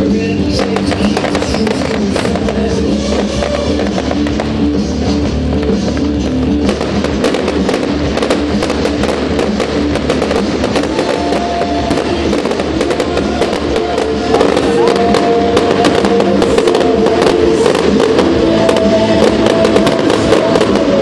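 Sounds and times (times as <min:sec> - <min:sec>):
fireworks crackling and banging: 0:00.0 - 0:21.0
loud music: 0:00.0 - 0:21.0.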